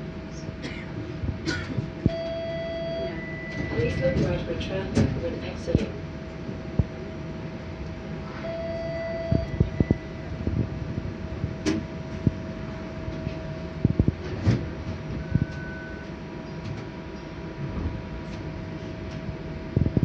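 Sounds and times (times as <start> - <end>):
electrical hum: 0.0 - 20.0
short electronic beeps: 2.1 - 4.2, 8.4 - 10.2.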